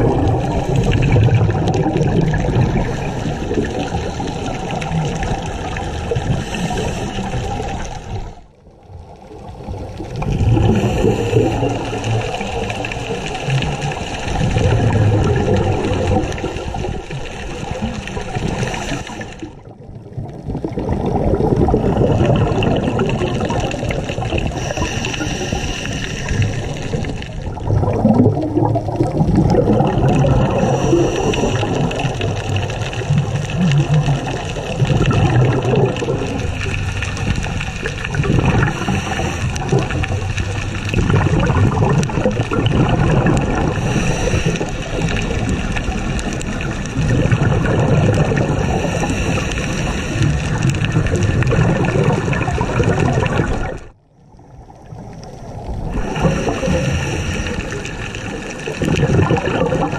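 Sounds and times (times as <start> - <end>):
diver breathing through regulator: 6.2 - 7.9, 10.4 - 12.1, 18.4 - 19.6, 23.4 - 27.2, 30.3 - 32.4, 38.3 - 40.2, 43.5 - 45.4, 48.4 - 50.9, 55.8 - 58.6.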